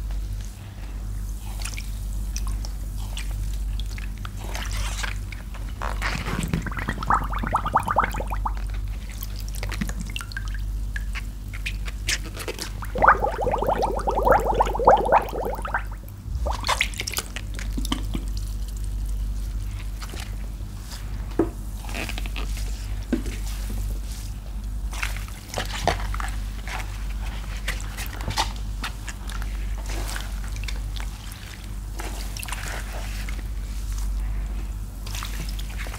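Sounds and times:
wet sponges squelching: 0:06.1 - 0:08.7, 0:12.9 - 0:16.6
water dripping: 0:06.6 - 0:08.7, 0:12.8 - 0:16.7
low hum: 0:12.9 - 0:16.8.

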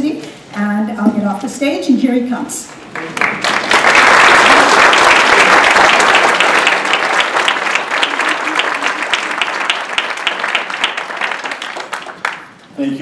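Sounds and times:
audience applauding: 0:02.7 - 0:12.6.

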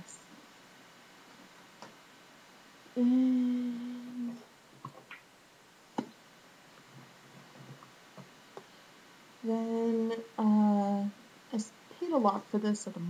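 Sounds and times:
woman humming: 0:02.9 - 0:04.5, 0:09.4 - 0:11.1.

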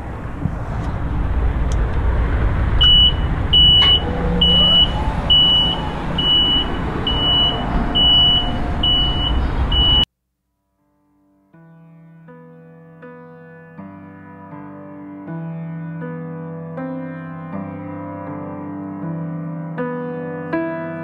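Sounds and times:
low rumble of running lift: 0:00.0 - 0:10.1
high alarm beeping: 0:02.8 - 0:10.1.

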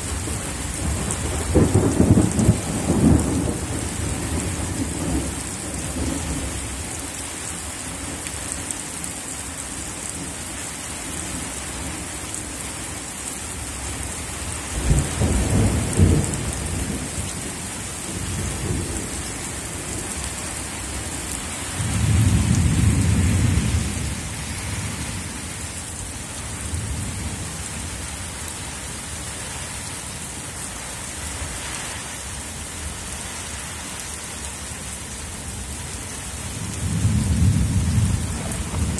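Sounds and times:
thunder rumbling: 0:00.0 - 0:06.5, 0:14.8 - 0:20.3, 0:21.6 - 0:28.1, 0:36.4 - 0:38.9
steady rain: 0:00.0 - 0:38.9.

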